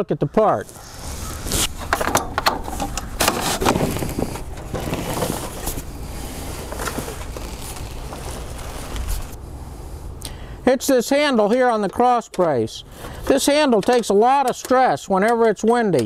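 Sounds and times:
canopy arm clicking and clattering: 11.4s - 16.0s.

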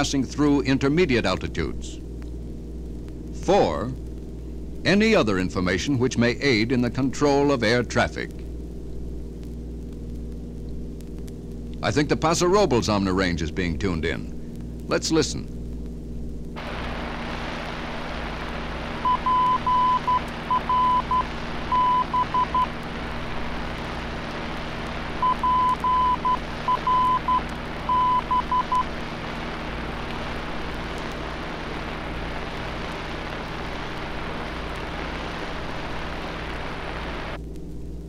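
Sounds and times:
receiver hiss and hum: 0.0s - 38.0s
morse code beeps: 19.0s - 22.7s, 25.2s - 28.9s.

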